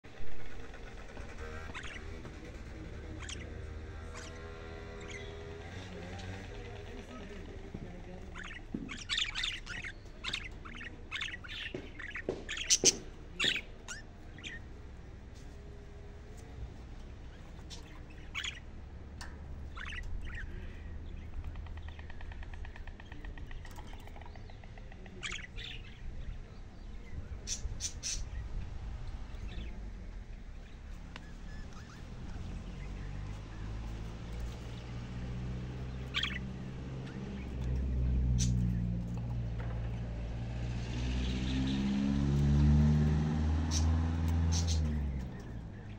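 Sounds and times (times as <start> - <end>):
low engine hum: 0.0 - 45.9
budgerigars chirping and squawking: 0.4 - 15.7, 16.3 - 40.1, 41.1 - 45.9
budgerigar chirping: 1.1 - 5.7, 8.3 - 14.6, 17.7 - 18.7, 19.7 - 20.5, 25.1 - 25.9, 35.5 - 38.8, 43.7 - 45.1.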